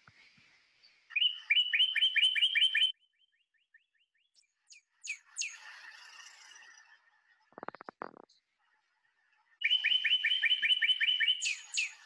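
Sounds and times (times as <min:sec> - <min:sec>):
songbird singing: 0:01.1 - 0:06.9, 0:07.5 - 0:08.4, 0:09.6 - 0:12.0.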